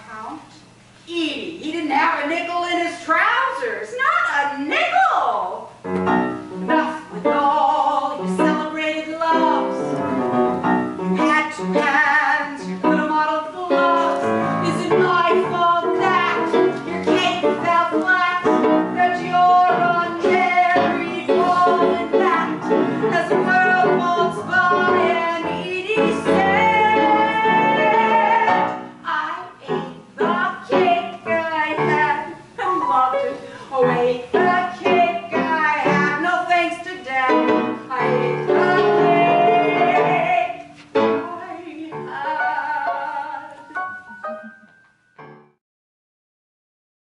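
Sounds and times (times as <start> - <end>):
woman singing: 6.5 - 10.0, 11.1 - 43.8
instrumental accompaniment: 8.2 - 32.3, 37.3 - 45.6.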